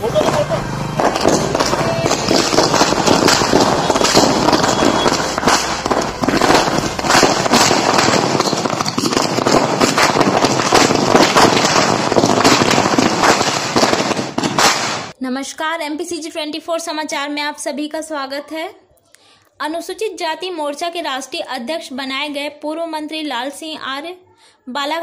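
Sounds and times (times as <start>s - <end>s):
firecrackers banging and crackling: 0.0s - 15.2s.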